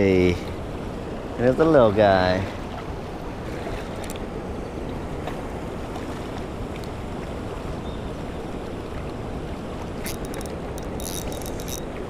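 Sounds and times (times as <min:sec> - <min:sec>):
light clicks and rattles: 0:10.0 - 0:11.9.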